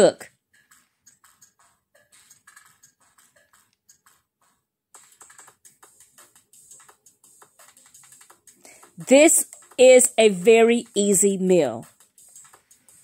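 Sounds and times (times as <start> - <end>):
faint clicks and ticks: 0.6 - 9.8.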